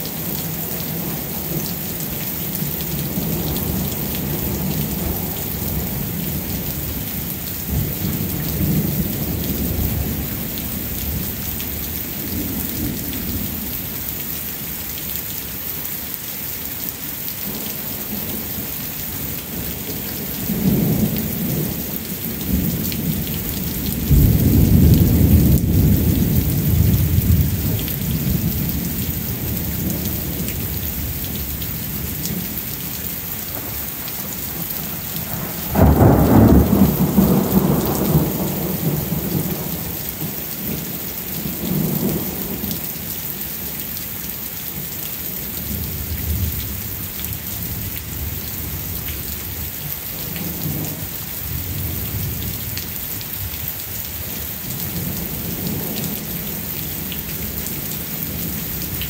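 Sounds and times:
steady rain falling: 0.0 - 59.0
thunder rumbling: 19.5 - 42.8.

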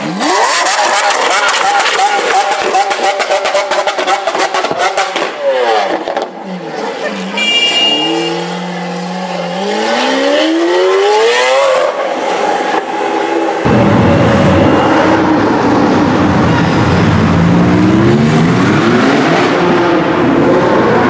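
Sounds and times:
car engine crackling and popping: 0.6 - 6.4
car accelerating in a tunnel: 13.3 - 21.0.

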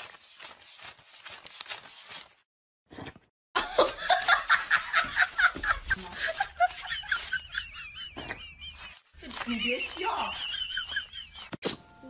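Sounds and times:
person laughing: 3.6 - 11.5.

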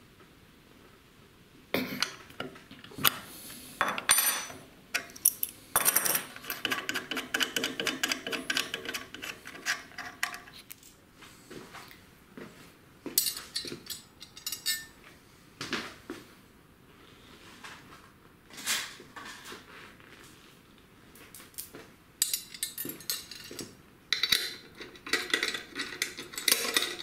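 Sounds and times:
metal clinks and rattles: 13.2 - 15.0, 22.2 - 27.0.

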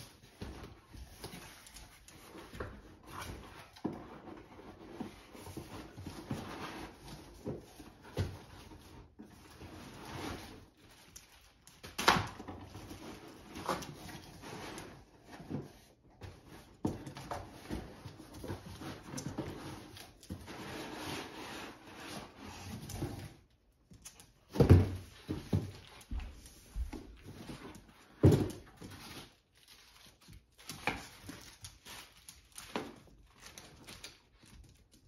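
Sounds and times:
cardboard rustling and scraping: 0.0 - 35.0
cardboard thump: 24.6 - 25.8.

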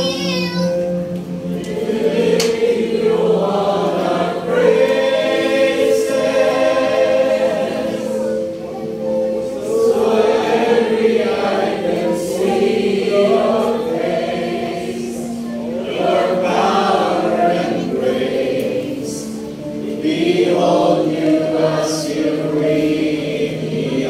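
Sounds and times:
congregation singing: 0.0 - 24.0.

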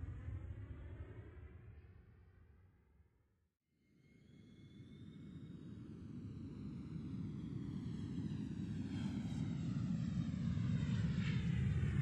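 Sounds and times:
aircraft engine rumble: 5.6 - 12.0.

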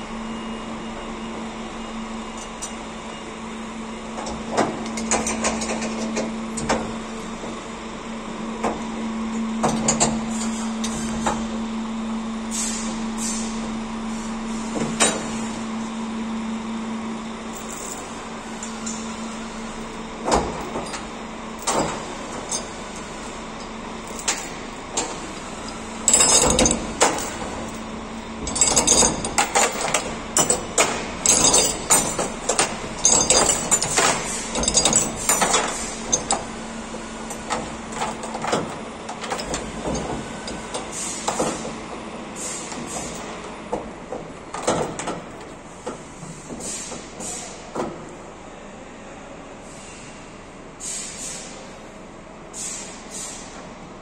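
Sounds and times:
steady low hum: 0.0 - 40.8
steel chain clanking: 24.0 - 36.4.

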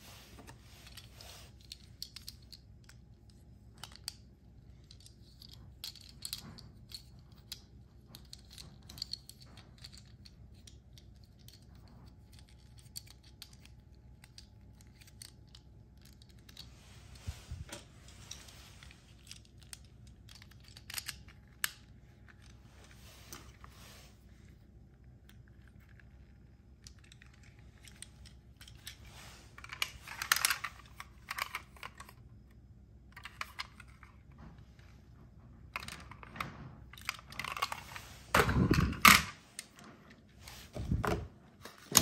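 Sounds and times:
plastic toy parts clicking: 1.6 - 16.7, 19.2 - 22.6, 29.6 - 32.2.

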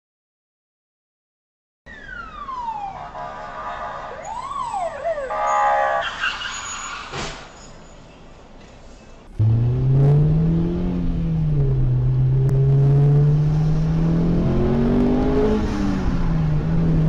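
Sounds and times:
emergency vehicle siren: 1.9 - 6.8.

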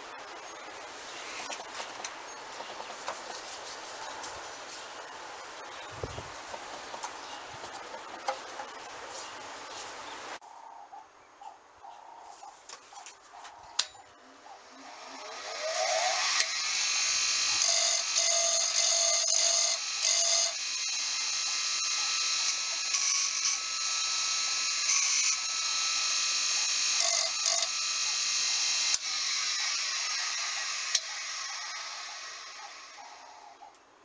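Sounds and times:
bench grinder whining: 14.4 - 33.6
metal tool grinding: 15.0 - 33.3.

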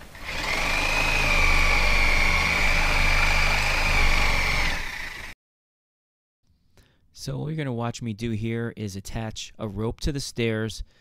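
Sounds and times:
reciprocating saw cutting nails: 0.2 - 5.3.

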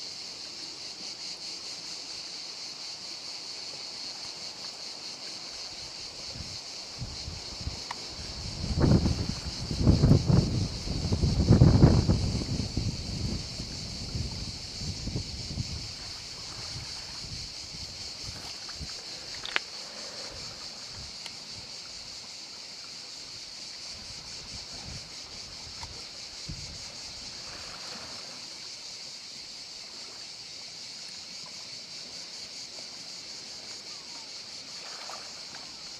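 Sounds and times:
faint water sounds: 0.0 - 35.9
steady high hiss: 0.0 - 35.9
wind buffeting microphone: 6.2 - 19.6, 24.0 - 27.6.

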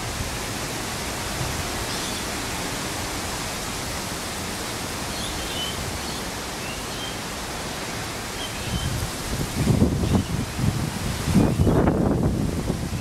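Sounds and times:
wind on the microphone: 0.0 - 2.9, 8.5 - 13.0.

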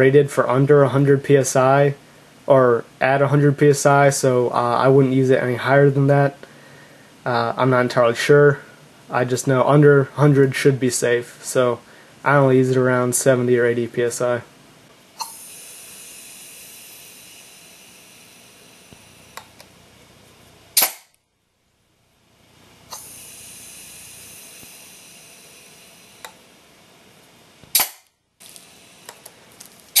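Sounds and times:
compressed air hissing: 15.2 - 19.6, 20.8 - 21.1, 22.9 - 26.4, 27.7 - 30.0.

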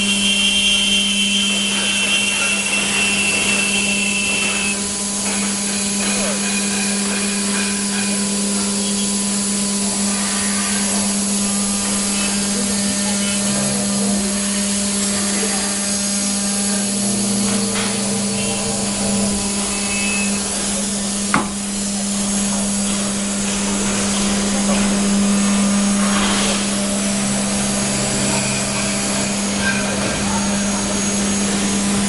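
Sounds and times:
router spindle humming and whining: 0.0 - 32.0
hiss of cutting: 9.8 - 13.4, 14.0 - 29.4
sharp knock: 21.3 - 21.6.

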